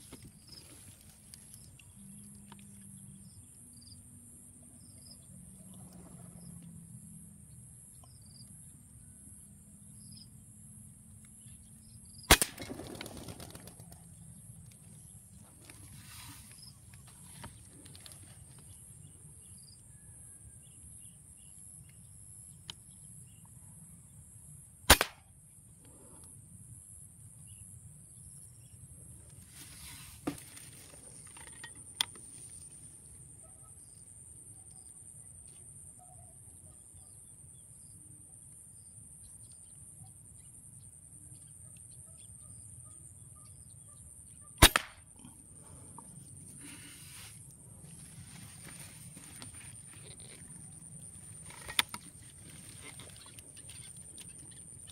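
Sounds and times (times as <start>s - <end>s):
air rifle shots: 12.3s - 13.0s, 24.9s - 25.2s, 44.6s - 45.3s.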